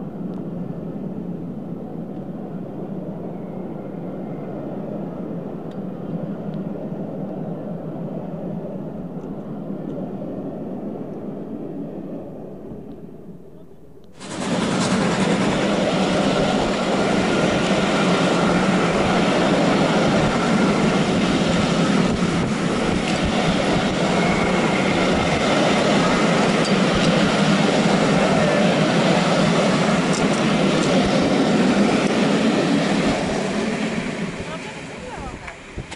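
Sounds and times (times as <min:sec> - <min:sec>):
train wheels rumbling on rails: 0:14.1 - 0:35.9.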